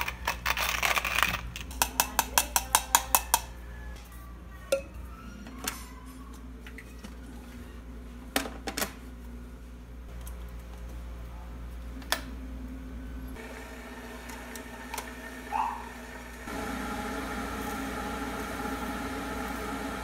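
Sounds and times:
kitchen items clicking on counter: 0:00.0 - 0:03.5.

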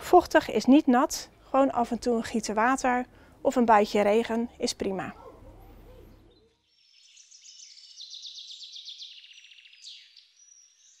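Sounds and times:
songbird twittering trills: 0:05.2 - 0:11.0.

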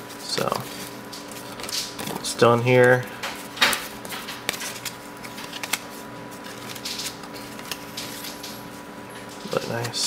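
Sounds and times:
cards clicking and rustling: 0:00.2 - 0:10.0.

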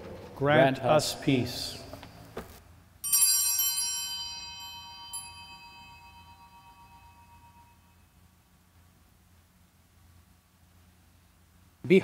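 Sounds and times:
bell ringing: 0:03.0 - 0:08.1.

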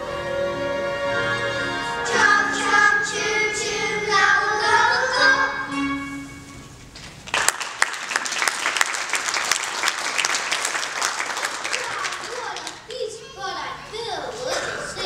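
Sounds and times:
children singing with accompaniment: 0:00.0 - 0:06.4, 0:11.8 - 0:15.0
audience applause: 0:07.2 - 0:12.9.

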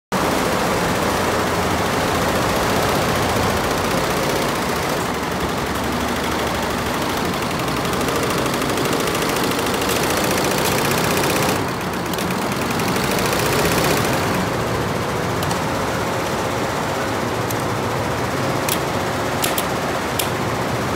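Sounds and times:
embroidery machine clatter: 0:01.2 - 0:20.9.

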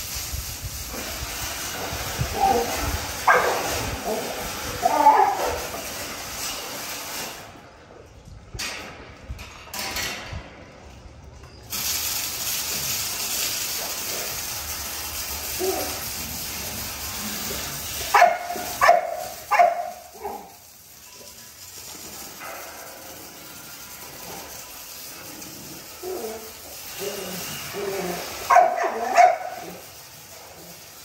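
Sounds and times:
hose spraying water: 0:00.0 - 0:08.1, 0:11.6 - 0:31.0
dog barking: 0:03.3 - 0:03.7, 0:18.1 - 0:20.5, 0:28.4 - 0:29.8.

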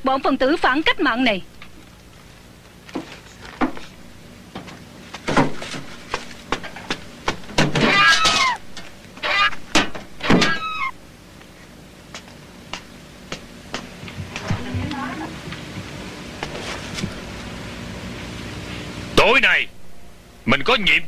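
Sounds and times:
cat meowing: 0:10.4 - 0:10.9.

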